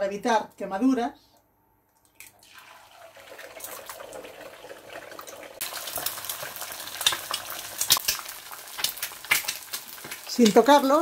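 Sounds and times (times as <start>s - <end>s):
egg frying in oil: 2.2s - 11.0s.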